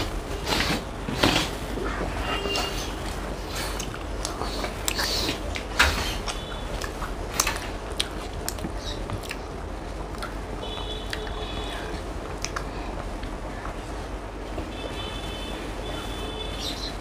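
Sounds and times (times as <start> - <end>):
chewing and mouth sounds: 3.0 - 11.3, 12.2 - 13.3
mouth smacks and clicks: 3.6 - 9.5, 10.1 - 11.4, 12.3 - 12.7.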